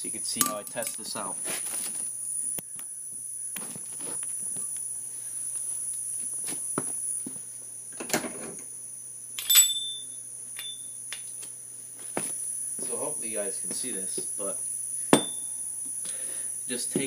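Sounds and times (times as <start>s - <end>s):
shuffling step: 1.4s - 2.1s
metallic clink with ring: 9.4s - 11.0s, 15.1s - 15.8s
high-pitched whine: 12.2s - 17.0s.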